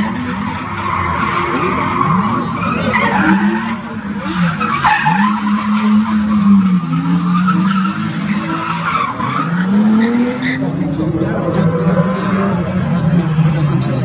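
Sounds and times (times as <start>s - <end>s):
tyres screeching: 0.0s - 10.8s
car engines revving: 0.0s - 14.0s.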